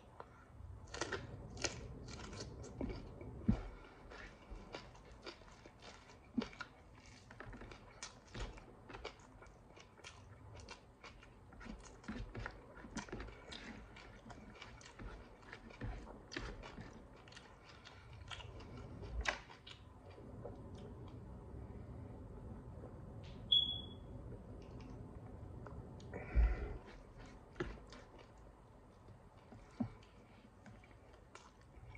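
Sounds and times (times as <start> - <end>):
person chewing and lip-smacking: 0.1 - 21.2.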